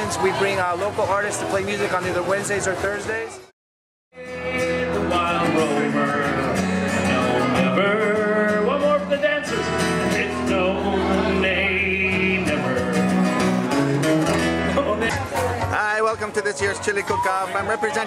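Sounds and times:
acoustic guitar strumming: 0.0 - 3.4, 4.2 - 18.0
man singing into a microphone: 4.1 - 13.9.

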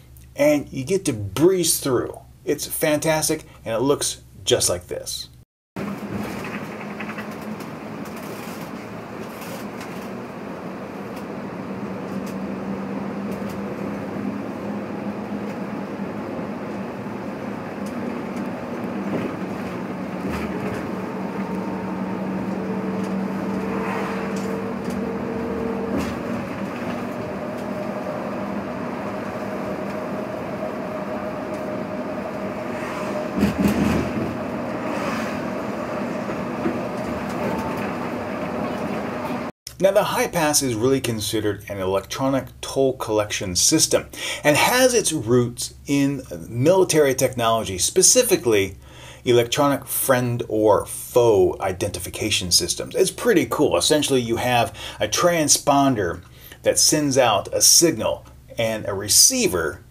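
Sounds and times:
bus engine drone: 5.8 - 39.5
road noise: 5.8 - 39.5
faint whining tones: 6.3 - 39.5.

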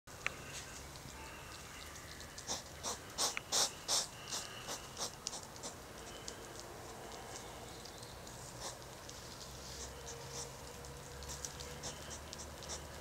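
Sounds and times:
hedgehogs snorting: 2.4 - 5.8, 8.4 - 9.0, 9.6 - 13.0.

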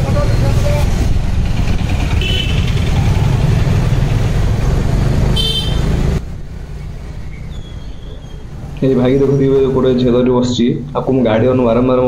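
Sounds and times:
wind rumble: 0.0 - 5.4
scooter engine rumble: 0.0 - 8.9
horn toots: 2.1 - 3.0, 5.2 - 6.2.

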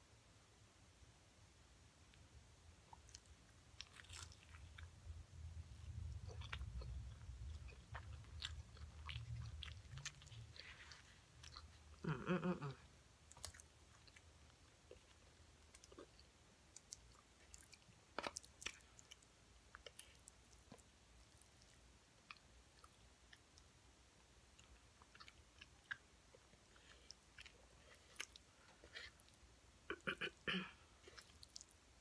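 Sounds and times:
chewing crunchy fried fish: 2.9 - 23.7, 24.5 - 30.1, 31.0 - 32.0
person humming: 12.0 - 12.9.

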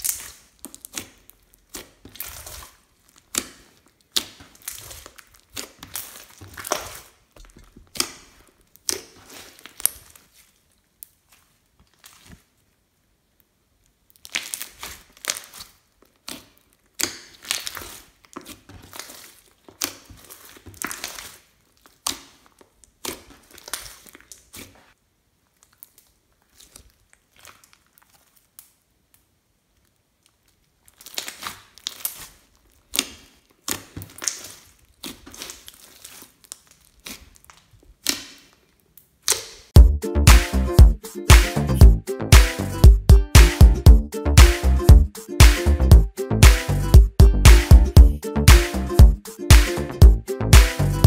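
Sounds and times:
slime squishing and crackling: 0.0 - 39.8.

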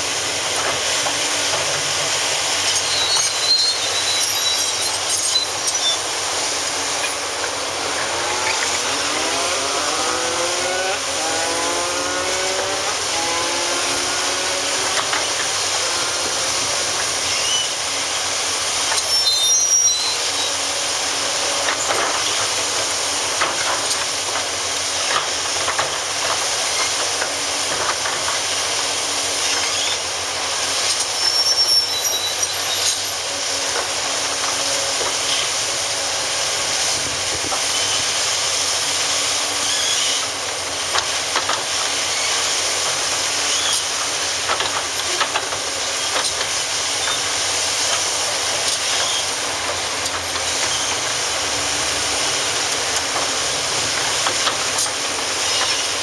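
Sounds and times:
excavator engine and hydraulics: 0.0 - 56.0
brief high squeaks: 2.7 - 6.1, 18.9 - 20.6, 31.0 - 33.0.

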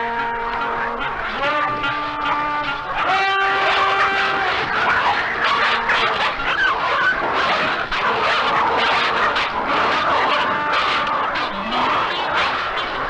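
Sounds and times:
high yelps: 0.1 - 13.0
coyote pups growling: 2.8 - 13.0.

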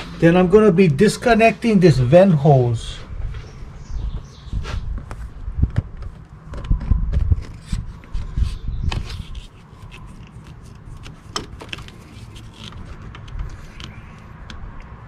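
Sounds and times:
light clicks and rubbing: 6.0 - 15.0.

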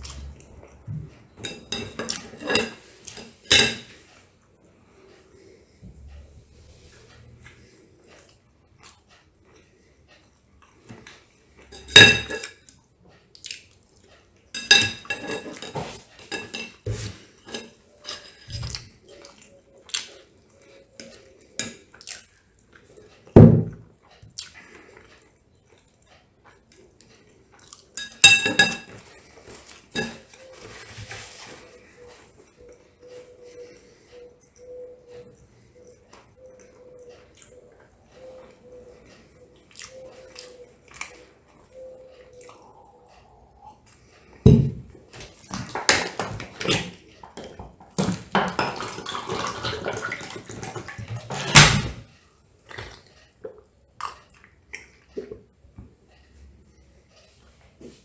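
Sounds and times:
cutlery clinking on ceramic plate: 1.4 - 4.1, 11.6 - 12.7, 14.5 - 18.9, 27.9 - 30.6.

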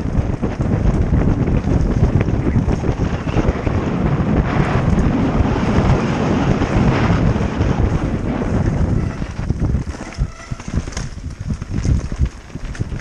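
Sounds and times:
wind rushing over microphone: 0.0 - 13.0
tyres rolling over dirt: 4.0 - 13.0.

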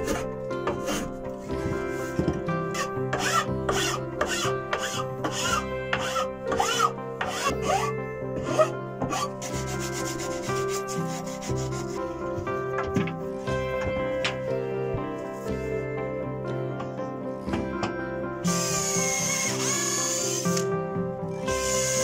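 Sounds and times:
soft background music: 0.0 - 22.0
hand file rasping on wood: 2.8 - 12.2
sandpaper rubbing on wood: 9.2 - 12.1.

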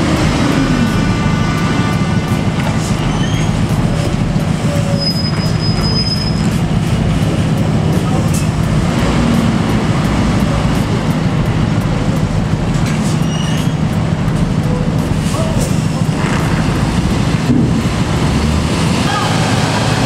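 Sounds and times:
truck diesel engine labouring: 0.0 - 20.0
high whistle: 4.7 - 6.5.

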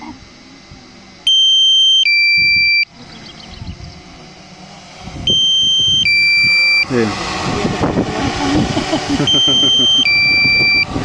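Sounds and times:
two-tone electronic alarm beeps: 1.3 - 2.9, 5.3 - 6.9, 9.2 - 10.9.

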